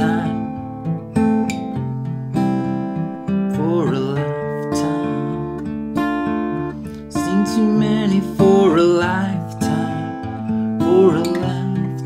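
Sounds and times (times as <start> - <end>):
man singing: 0.0 - 0.7, 3.5 - 12.0
acoustic guitar strumming: 0.0 - 12.0.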